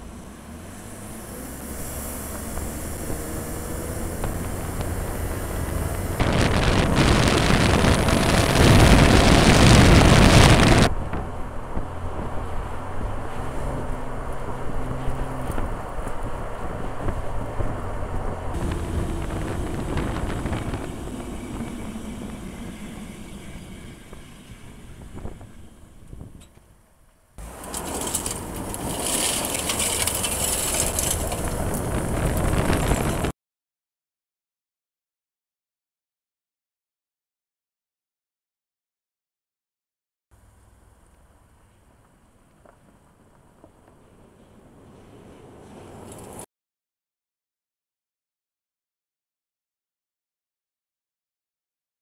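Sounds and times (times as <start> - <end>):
road and wind noise: 0.0 - 33.4, 40.4 - 46.5
low rumble: 1.6 - 26.4
tyres crunching over gravel: 5.8 - 10.9, 27.4 - 33.3.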